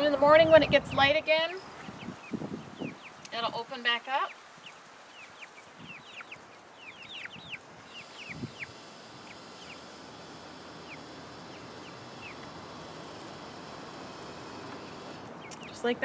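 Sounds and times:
chicks peeping: 0.3 - 16.0
motor whine: 7.0 - 15.8.

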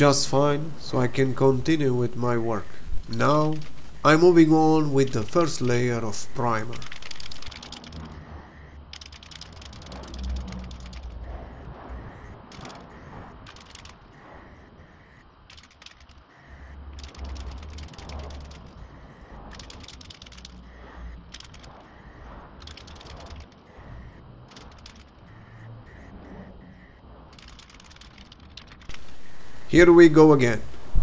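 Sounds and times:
spray can ball rattling: 3.1 - 11.4, 12.5 - 14.4, 15.5 - 23.9, 24.5 - 25.6, 27.3 - 29.6
wind on microphone: 9.8 - 15.5.

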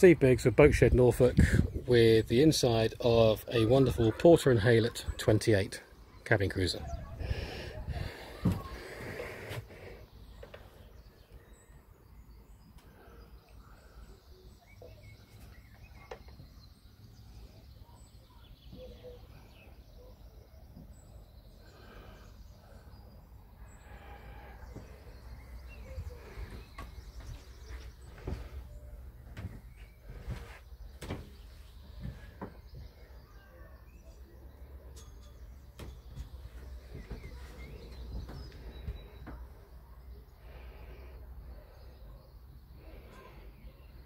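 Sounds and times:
faint chirps: 6.8 - 44.0.

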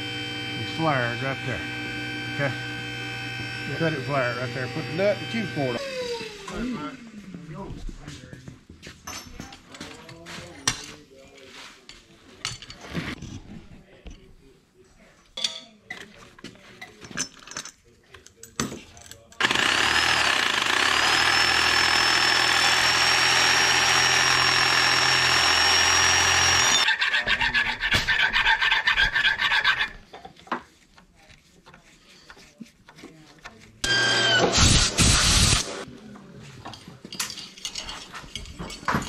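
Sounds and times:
electric cutting tool whining: 0.0 - 6.7, 19.4 - 26.9, 33.8 - 35.8
rasping strokes on metal: 19.4 - 30.1.

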